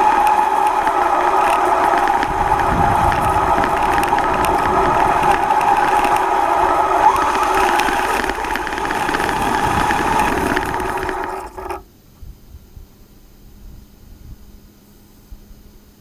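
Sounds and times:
rc truck motor whining: 0.0 - 11.8
tyre and ground noise: 0.0 - 11.8.

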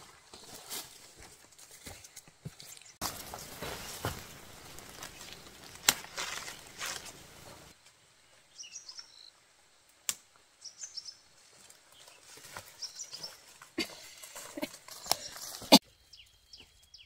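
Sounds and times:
leafy stems rustling and snapping: 2.7 - 7.9, 11.5 - 15.7
small bird chirping: 8.5 - 9.3, 10.6 - 11.2, 15.0 - 17.0.

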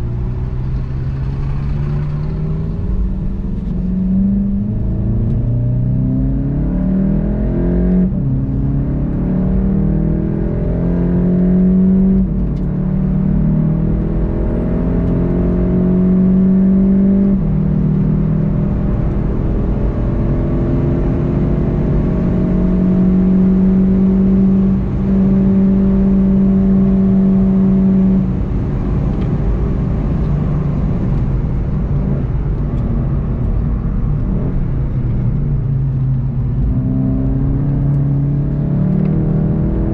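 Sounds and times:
car engine accelerating through gears: 0.0 - 39.9.

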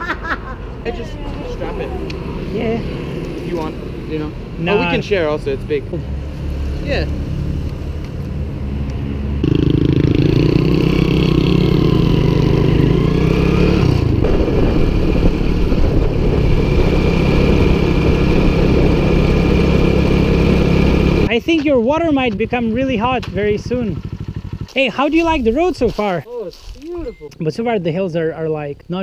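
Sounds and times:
small motorcycle engine running: 9.4 - 21.3, 22.8 - 25.1.

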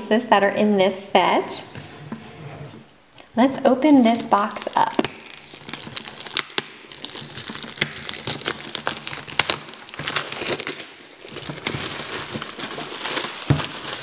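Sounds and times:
plastic wrapping crinkling and tearing: 3.7 - 14.0.

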